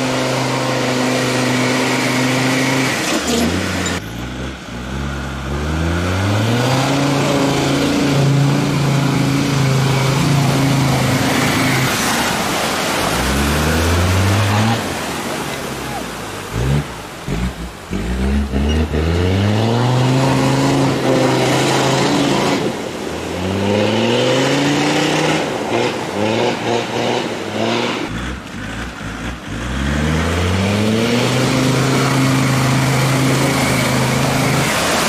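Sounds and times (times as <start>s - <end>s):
wheels churning mud: 0.0s - 35.0s
engine revving hard: 16.5s - 35.0s.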